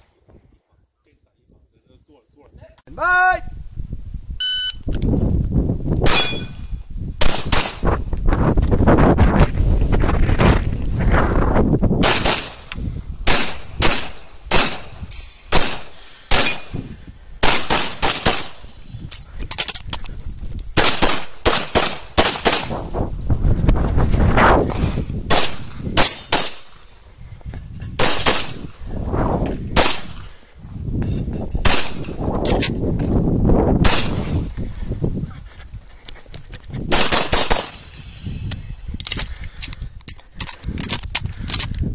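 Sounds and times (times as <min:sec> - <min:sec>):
pistol shots: 0:07.2 - 0:07.8, 0:12.0 - 0:16.8, 0:17.4 - 0:18.8, 0:20.8 - 0:22.7, 0:24.7 - 0:26.9, 0:28.0 - 0:28.8, 0:29.8 - 0:30.3, 0:31.6 - 0:32.2, 0:33.8 - 0:34.4, 0:36.9 - 0:38.0.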